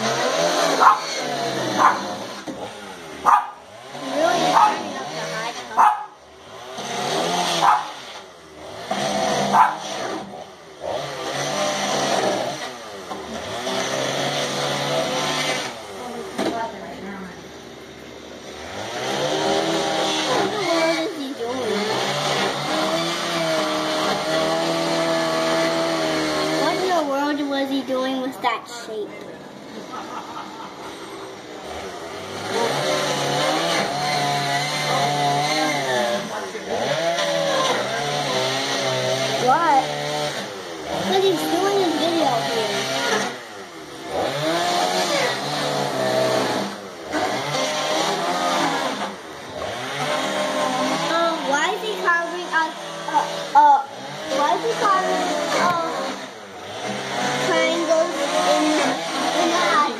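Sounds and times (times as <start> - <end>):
chainsaw revving while cutting: 0.0 - 17.2, 18.2 - 28.2, 29.6 - 59.9.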